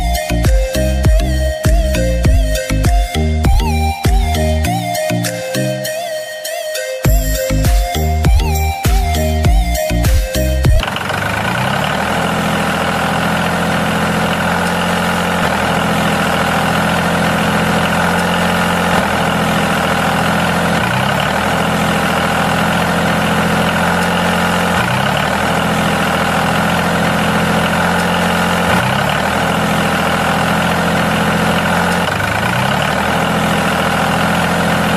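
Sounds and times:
engine idling: 0.0s - 6.2s, 7.0s - 34.9s
electronic music: 0.0s - 10.9s
rising pitch sweep: 0.0s - 34.9s.

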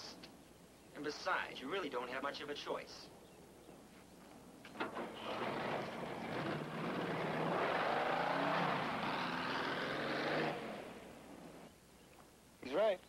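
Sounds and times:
dune buggy engine revving: 4.9s - 11.7s.

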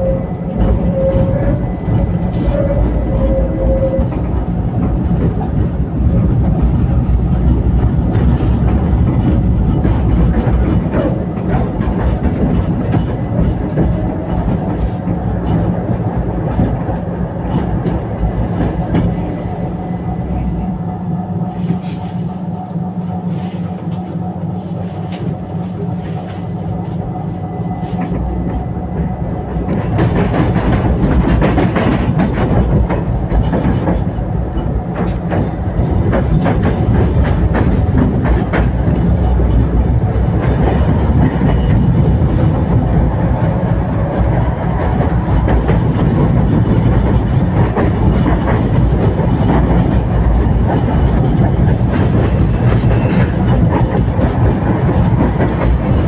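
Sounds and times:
tram running on rails: 0.0s - 56.0s
wheels clicking on track: 44.2s - 56.0s.

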